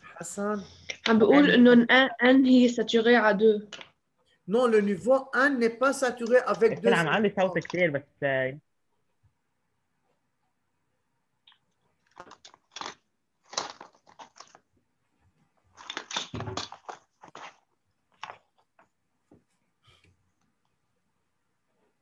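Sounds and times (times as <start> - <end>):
rustling and crackling handling noise: 12.0 - 19.6.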